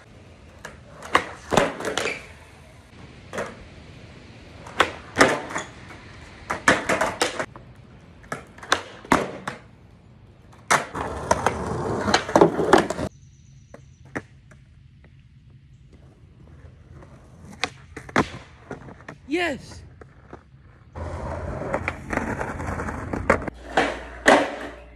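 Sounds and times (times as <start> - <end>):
skateboard wheels rolling on concrete: 0.0 - 24.9
skateboard popping and clacking: 0.5 - 2.6, 3.2 - 3.7, 4.5 - 9.8, 15.9 - 19.2, 19.9 - 24.9.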